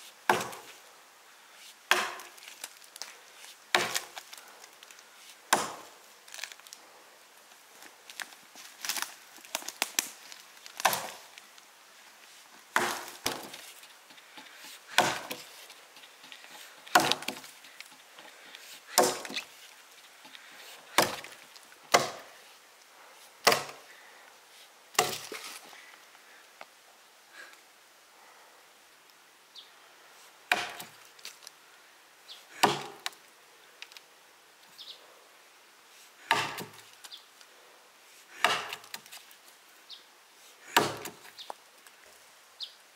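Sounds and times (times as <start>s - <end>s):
chopping blows on wood: 0.3s - 0.6s, 19.0s - 19.4s, 23.4s - 23.8s, 30.5s - 30.9s, 36.3s - 36.8s, 38.4s - 39.0s, 40.7s - 41.2s.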